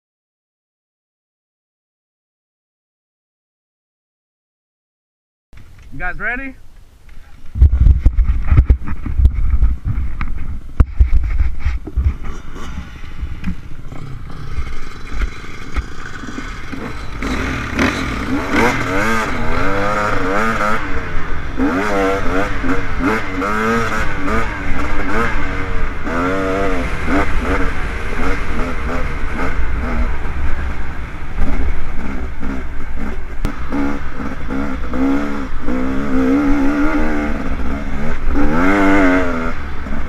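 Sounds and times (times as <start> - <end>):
low rumbling buffeting and clatter: 5.6 - 40.0
dirt bike engine revving: 12.0 - 40.0.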